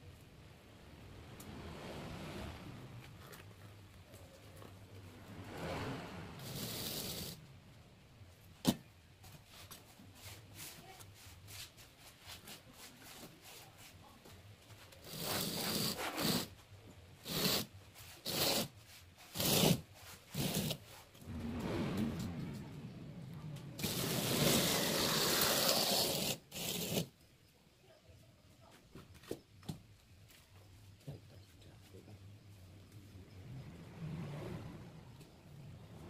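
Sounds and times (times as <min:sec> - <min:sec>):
wooden template scraping wet mortar: 0:17.2 - 0:21.2, 0:23.8 - 0:27.1.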